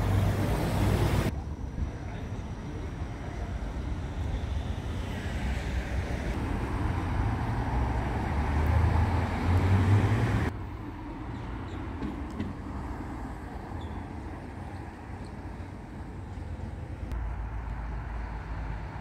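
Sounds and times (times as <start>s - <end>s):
street traffic noise: 0.0s - 19.0s
tram hum and rumble: 0.0s - 19.0s.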